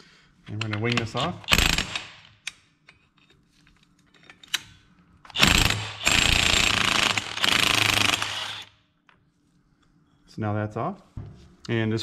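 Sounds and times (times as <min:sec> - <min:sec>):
impact wrench hammering: 0:05.4 - 0:08.7.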